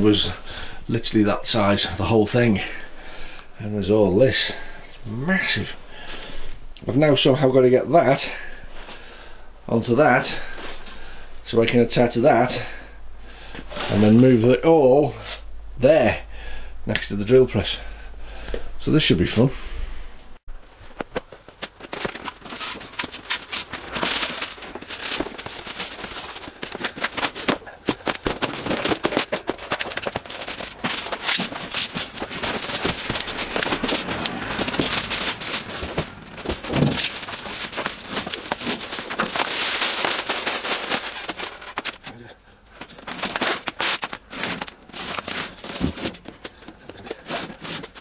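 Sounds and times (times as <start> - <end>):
packaging crinkling and rustling: 20.6 - 48.0.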